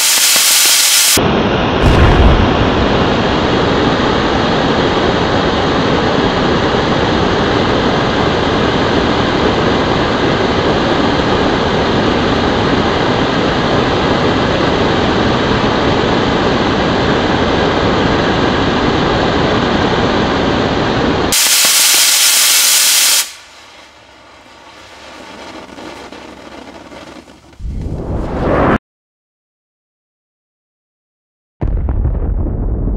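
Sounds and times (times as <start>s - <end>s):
model rocket engine roaring: 20.4s - 28.6s.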